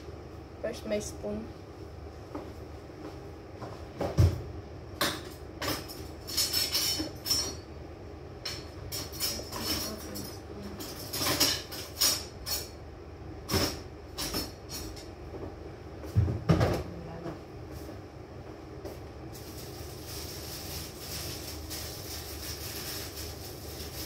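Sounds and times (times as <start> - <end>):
steady background hum: 0.0 - 24.0
kitchen utensils clattering: 5.0 - 7.6, 8.5 - 12.8, 13.5 - 15.1.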